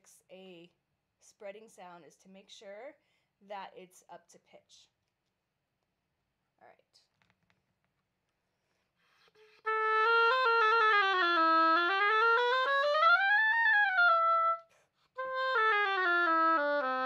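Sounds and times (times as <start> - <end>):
oboe playing: 9.4 - 17.0.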